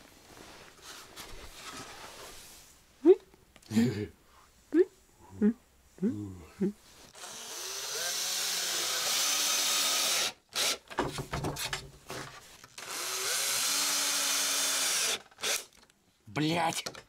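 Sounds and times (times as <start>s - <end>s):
cordless drill driving screws: 7.1s - 11.0s, 12.7s - 15.8s.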